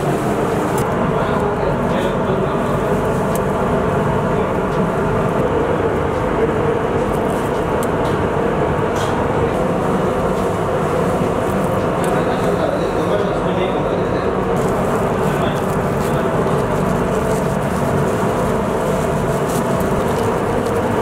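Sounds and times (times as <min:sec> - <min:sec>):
gas burners roaring: 0:00.0 - 0:21.0.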